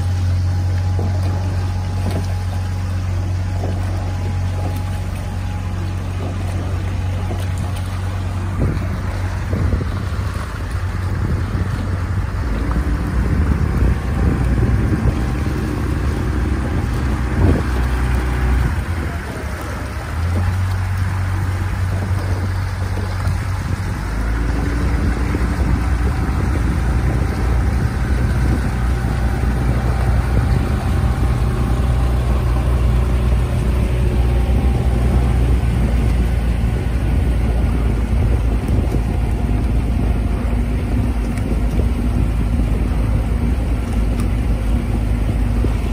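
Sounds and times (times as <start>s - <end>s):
outboard motor running: 0.0s - 45.9s
water wash: 0.0s - 45.9s
wind on microphone: 0.0s - 45.9s.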